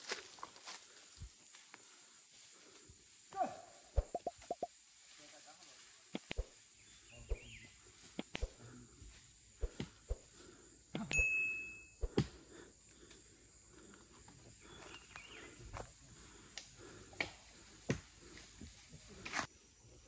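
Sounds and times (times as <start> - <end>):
footsteps crunching on leaf litter: 0.0 - 1.8
twigs snapping: 6.1 - 6.5.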